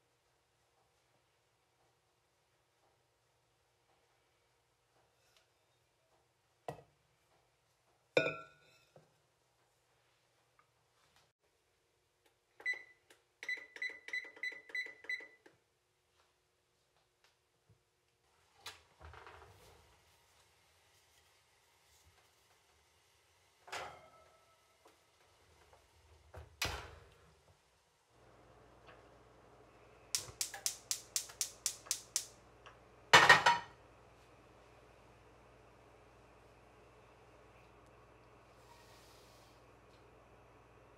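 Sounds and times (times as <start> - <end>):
oven control panel beeps: 12.6 - 15.4
gas stove igniter clicking: 30.1 - 32.4.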